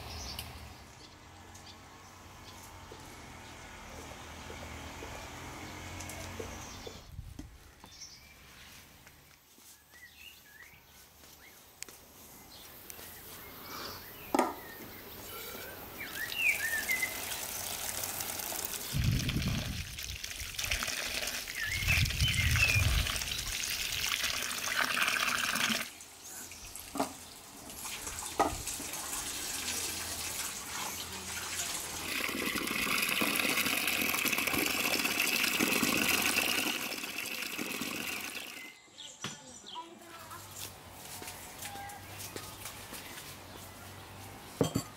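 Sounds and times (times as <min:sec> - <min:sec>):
water splashing and trickling: 0:16.0 - 0:38.7.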